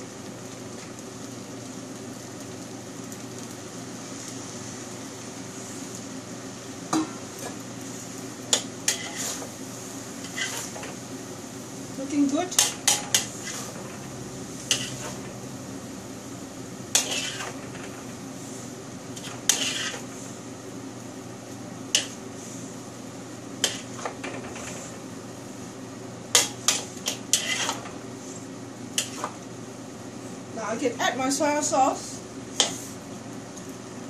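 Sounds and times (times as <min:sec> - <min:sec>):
steady low hum: 0:04.6 - 0:34.0
utensils scraping against a wok: 0:07.0 - 0:09.6, 0:10.2 - 0:11.0, 0:12.0 - 0:15.4, 0:16.9 - 0:20.4, 0:21.9 - 0:22.7, 0:23.6 - 0:25.0, 0:26.3 - 0:29.4, 0:32.5 - 0:33.0.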